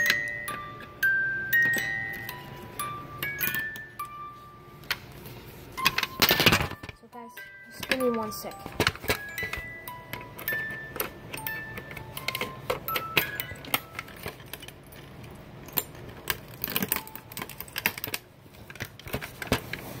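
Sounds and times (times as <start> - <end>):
toy clicks and rattles: 0.0 - 4.2, 5.8 - 19.8.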